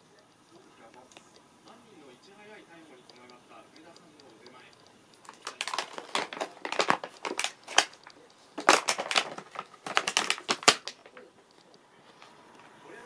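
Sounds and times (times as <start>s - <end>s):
plastic packaging crinkling: 5.2s - 11.6s.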